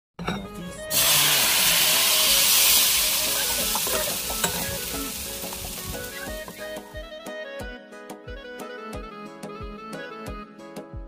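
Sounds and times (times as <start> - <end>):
batter sizzling in a pan: 0.9 - 6.9.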